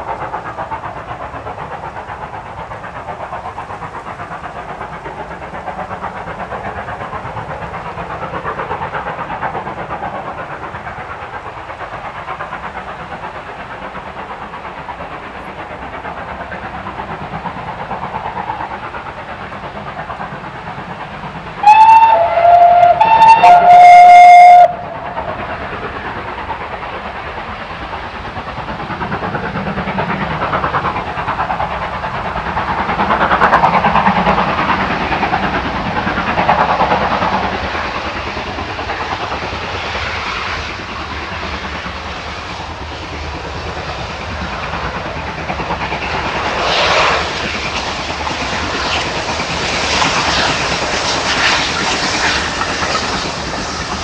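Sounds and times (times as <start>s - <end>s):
steam locomotive exhaust beat: 0.0s - 54.0s
steam whistle blasts: 21.6s - 25.0s.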